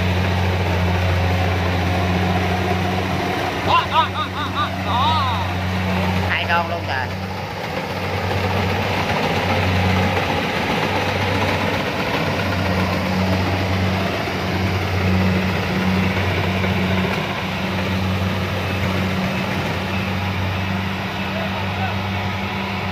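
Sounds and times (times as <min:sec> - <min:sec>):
combine harvester diesel engine: 0:00.0 - 0:22.9.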